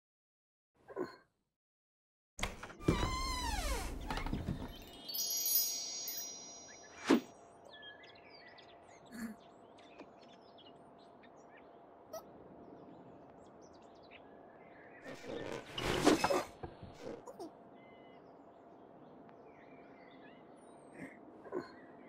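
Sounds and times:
high ringing chime: 4.8s - 7.3s.

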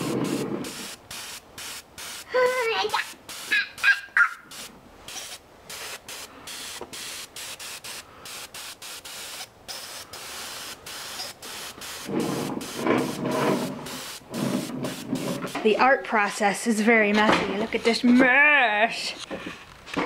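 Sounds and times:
airbrush spraying hiss: 0.0s - 15.6s.

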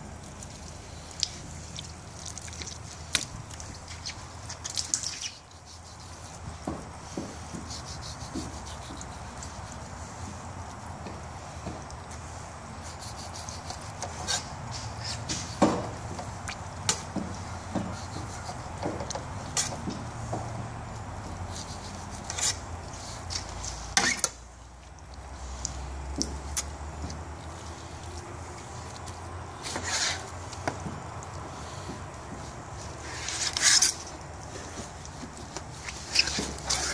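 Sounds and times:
knife scraping cutting board: 12.9s - 15.7s.

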